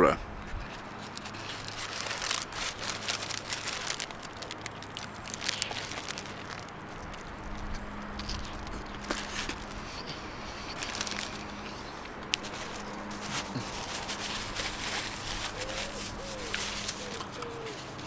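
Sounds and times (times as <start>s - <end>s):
aluminium foil crinkling: 0.6s - 18.0s
person chewing food: 1.0s - 14.1s.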